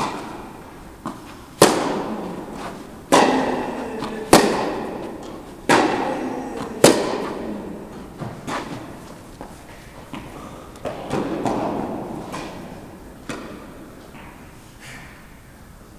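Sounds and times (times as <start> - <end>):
tennis ball bouncing: 0.0 - 14.4
tennis racket hitting ball: 0.0 - 14.4.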